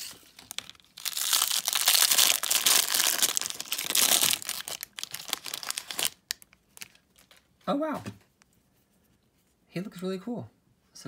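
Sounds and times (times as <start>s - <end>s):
plastic wrapper tearing and crinkling: 0.0s - 7.5s.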